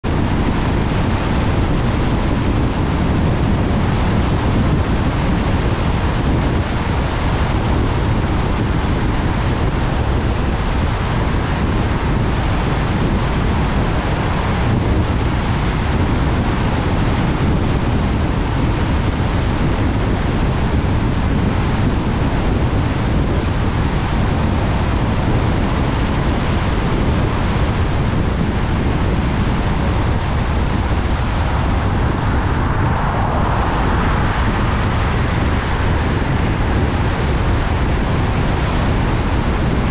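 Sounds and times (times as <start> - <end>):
wind: 0.0 - 39.9
tyres hissing on wet road: 30.8 - 38.9.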